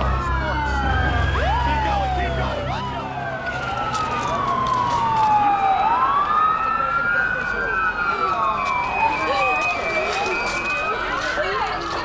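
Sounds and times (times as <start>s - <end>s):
low rumble: 0.0s - 4.8s
emergency vehicle sirens wailing: 0.0s - 12.0s.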